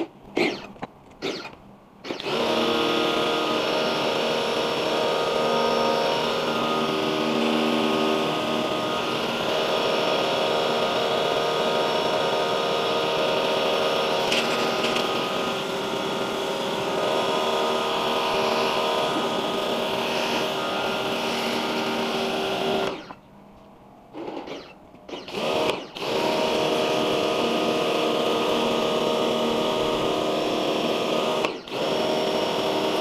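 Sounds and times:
pressure washer motor humming: 0:02.1 - 0:23.1, 0:25.2 - 0:33.0.

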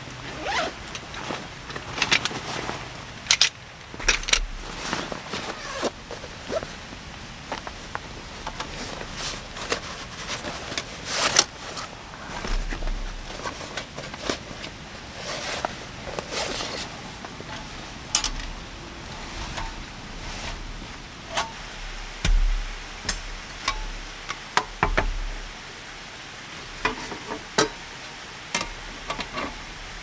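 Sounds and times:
fabric bag rustling: 0:04.4 - 0:24.1
scrape: 0:08.8 - 0:17.8, 0:19.2 - 0:20.6.

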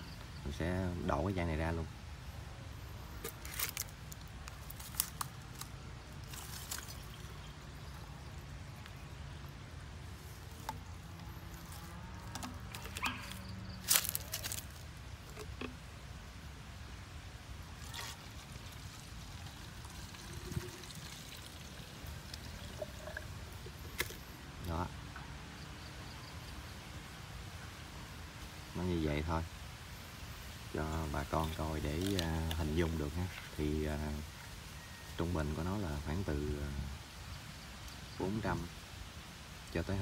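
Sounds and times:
liquid trickling into bottle: 0:06.2 - 0:08.4, 0:17.8 - 0:24.2
plastic bottle clicking and crinkling: 0:12.2 - 0:15.8.

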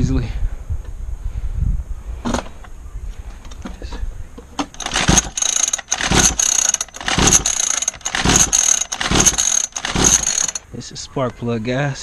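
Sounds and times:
recoil starter whirring and rattling: 0:04.6 - 0:10.6.

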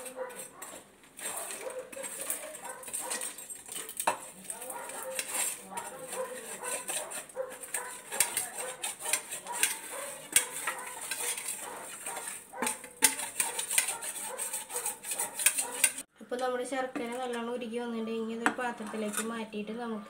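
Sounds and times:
steel spoon clinking on plate: 0:01.5 - 0:16.0.

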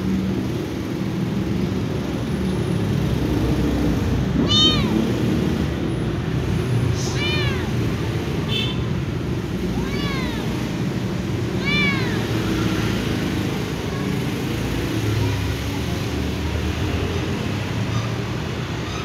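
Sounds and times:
cat meowing: 0:04.4 - 0:05.2, 0:06.9 - 0:07.9, 0:09.7 - 0:10.7, 0:11.4 - 0:13.0.

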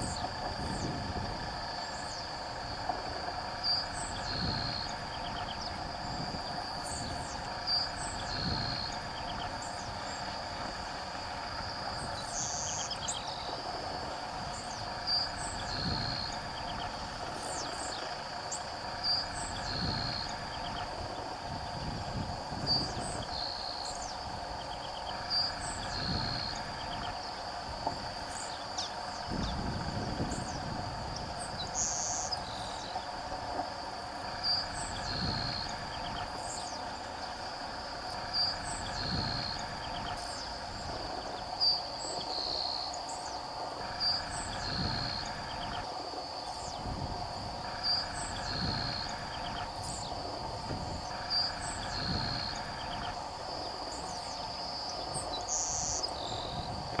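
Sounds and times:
steady high hum: 0:00.0 - 0:57.0.

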